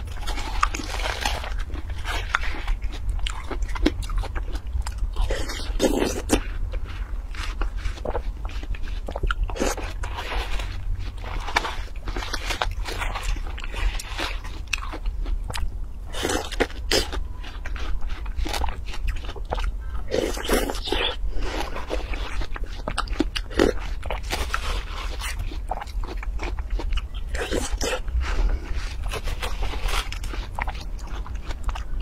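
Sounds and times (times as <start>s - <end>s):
crisp bites and wet chewing: 0.0s - 32.0s
low hum: 23.8s - 32.0s.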